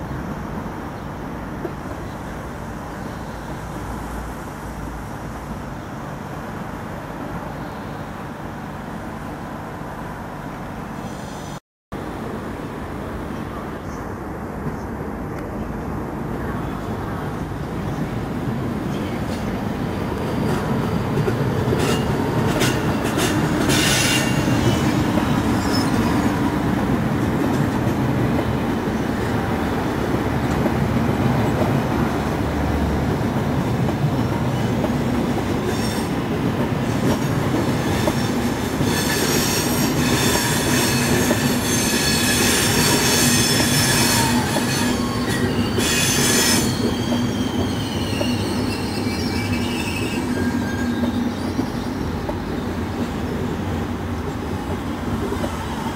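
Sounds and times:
train wheels rumbling on rail: 0.0s - 55.9s
high-pitched wheel squeal: 21.8s - 26.4s, 37.8s - 52.2s.

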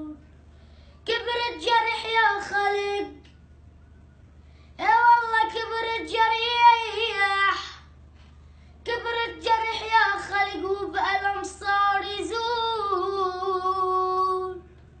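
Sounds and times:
boy singing: 0.0s - 0.2s, 1.0s - 3.2s, 4.8s - 7.9s, 8.8s - 14.7s
breath: 0.5s - 1.0s, 4.4s - 4.8s, 8.2s - 8.8s.

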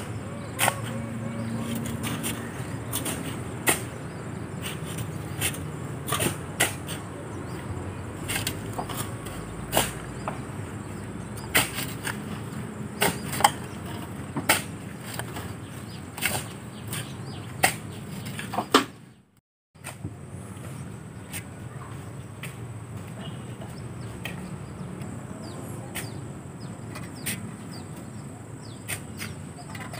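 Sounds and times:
shovels scraping sand: 0.0s - 18.8s, 19.8s - 29.9s.

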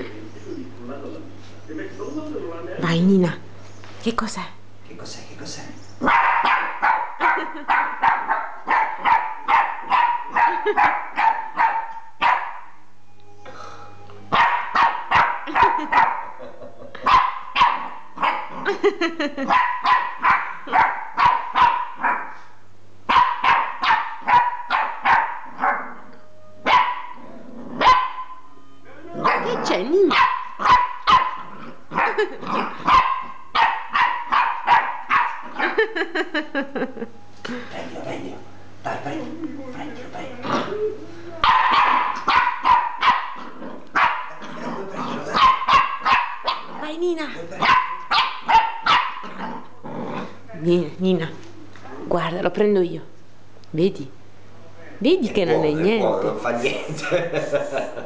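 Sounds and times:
puppy barking: 6.0s - 12.8s, 14.3s - 18.6s, 19.4s - 22.4s, 23.1s - 28.4s, 29.2s - 35.9s, 41.4s - 46.8s, 47.6s - 49.4s.

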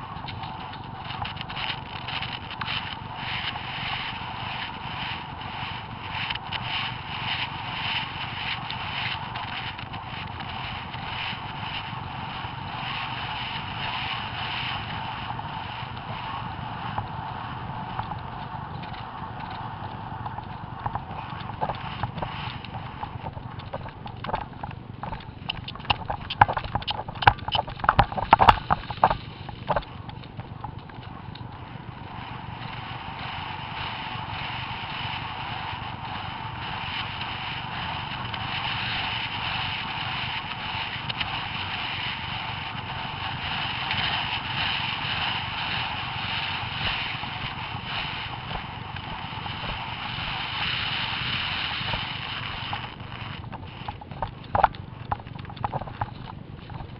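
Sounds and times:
wind on microphone: 0.0s - 56.9s
horse hoofbeats: 17.9s - 31.5s.

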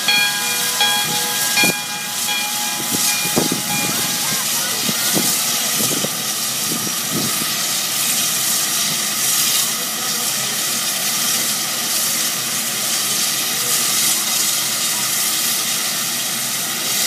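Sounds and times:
low wavering sounds: 0.0s - 6.2s
steam locomotive hissing steam: 0.0s - 17.0s.

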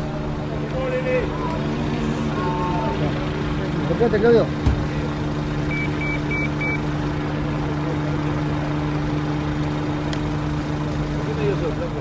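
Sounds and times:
engine idling: 0.0s - 12.0s
short high beeps: 5.7s - 6.8s.

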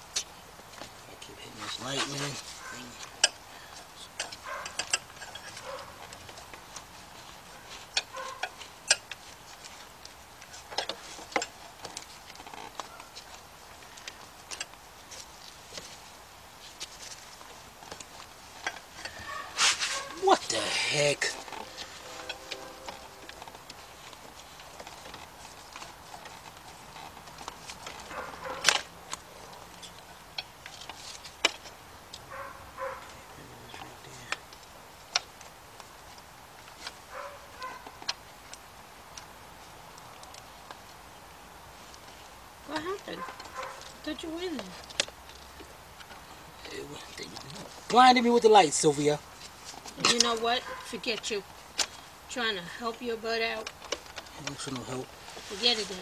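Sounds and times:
hand tools tapping metal: 1.6s - 6.9s, 17.9s - 30.7s.

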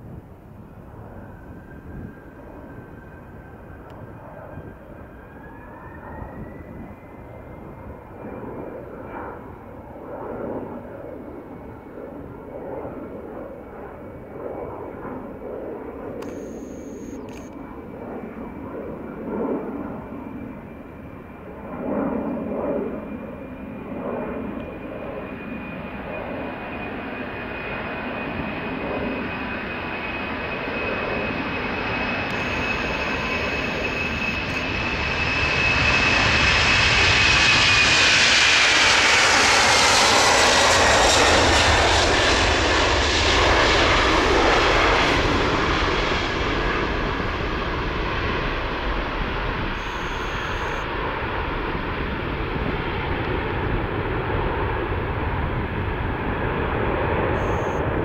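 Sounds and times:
jet engine whine: 0.0s - 58.0s
deep jet rumble: 27.2s - 58.0s.

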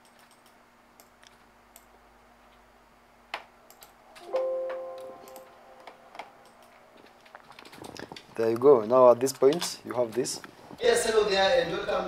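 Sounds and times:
computer mouse clicks: 0.0s - 1.9s, 3.3s - 4.3s, 5.2s - 6.8s
held musical tone: 4.2s - 6.4s.

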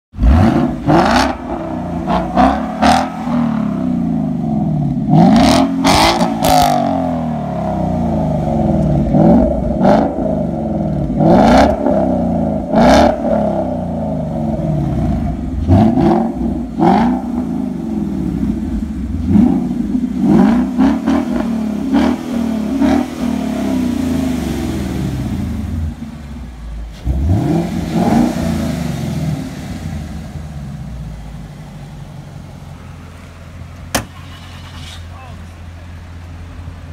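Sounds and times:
car engine idling: 0.1s - 36.9s
car engine revving: 0.1s - 36.9s.

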